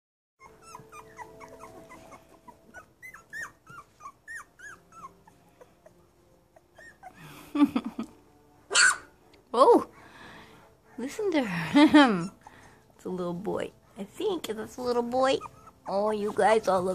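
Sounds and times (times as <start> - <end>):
puppies whimpering: 0.4 - 7.6, 10.8 - 16.9.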